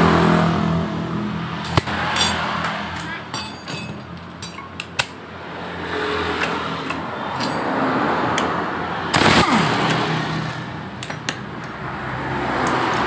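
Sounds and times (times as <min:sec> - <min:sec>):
loud burst of noise: 0:09.0 - 0:10.8
sharp clicks: 0:09.1 - 0:10.2.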